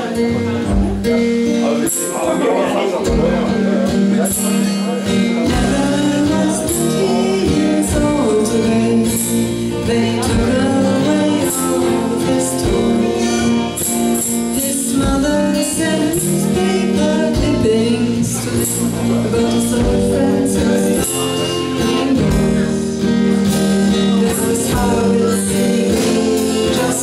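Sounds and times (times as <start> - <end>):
drum kit with cymbals: 0.0 - 27.0
strummed acoustic guitar: 0.0 - 27.0
woman singing: 5.3 - 27.0.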